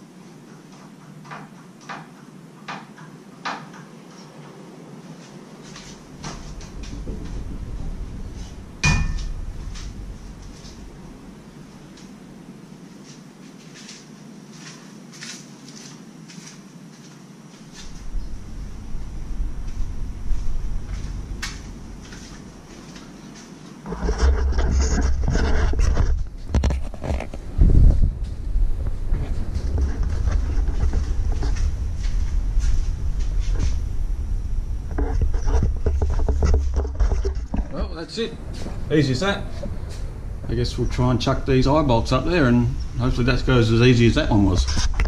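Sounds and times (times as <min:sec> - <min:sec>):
low hum: 0:04.6 - 0:45.0
wind buffeting microphone: 0:06.0 - 0:11.6, 0:17.8 - 0:22.7, 0:23.9 - 0:45.0.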